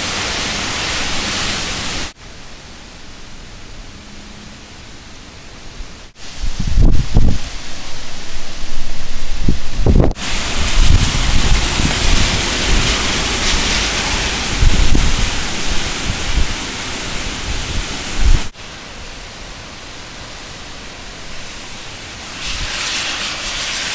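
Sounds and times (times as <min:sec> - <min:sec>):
heavy rain: 0:00.0 - 0:23.9
wind gusting: 0:00.0 - 0:23.9
wind buffeting microphone: 0:05.8 - 0:18.6, 0:22.4 - 0:23.8.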